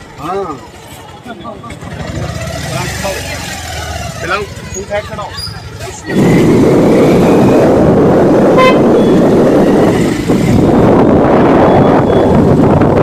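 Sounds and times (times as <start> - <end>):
rushing road noise: 0.0 - 13.0
vehicle horn toot: 8.5 - 9.2.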